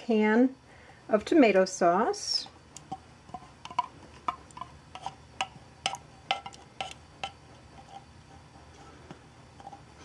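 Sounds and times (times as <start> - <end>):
tin can tapping on crock: 2.8 - 8.0.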